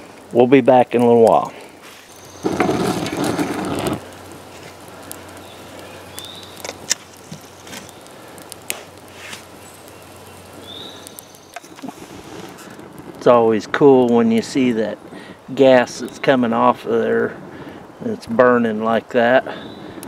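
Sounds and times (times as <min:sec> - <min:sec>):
campfire crackling and popping: 0:00.0 - 0:20.0
bird chirping: 0:02.1 - 0:02.6, 0:05.4 - 0:06.6, 0:09.6 - 0:11.8
loud rush of noise: 0:02.1 - 0:05.3.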